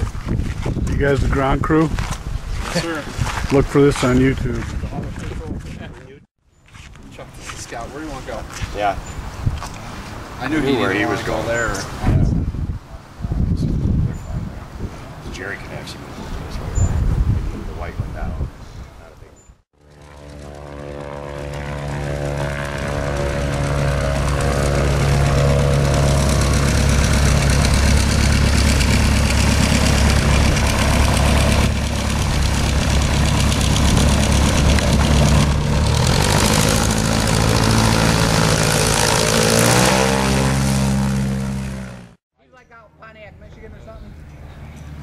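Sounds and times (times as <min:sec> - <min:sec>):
propeller engine running: 0:19.8 - 0:42.2.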